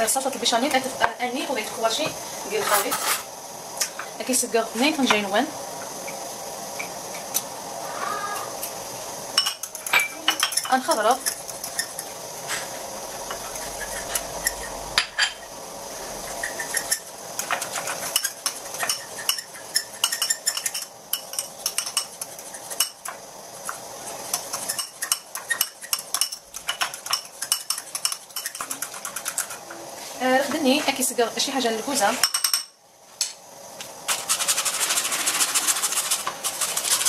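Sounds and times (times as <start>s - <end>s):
spoon clinking against ceramic bowl: 9.4s - 12.0s, 18.1s - 23.0s.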